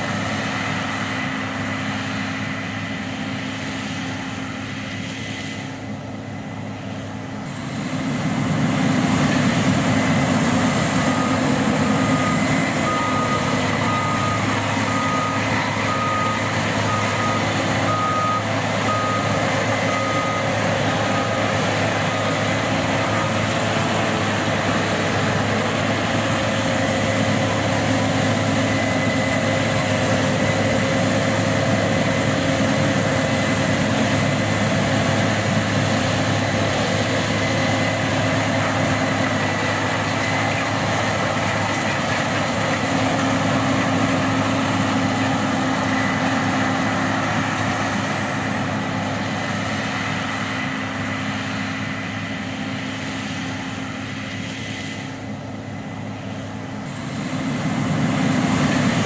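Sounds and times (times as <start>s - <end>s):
combine harvester engine: 0.0s - 59.0s
reversing alarm beeping: 10.0s - 25.6s, 27.0s - 31.0s.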